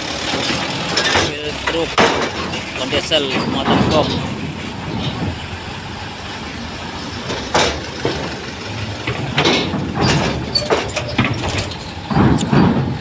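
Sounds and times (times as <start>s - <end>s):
diesel engines running: 0.0s - 13.0s
traffic rumble: 0.0s - 13.0s
sharp metal clanks: 0.3s - 5.4s.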